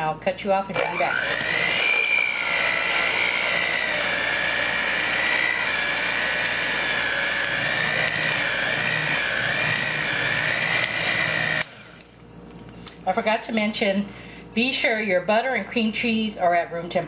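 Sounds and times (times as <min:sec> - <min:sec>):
electric hand mixer whining: 0:00.7 - 0:12.2.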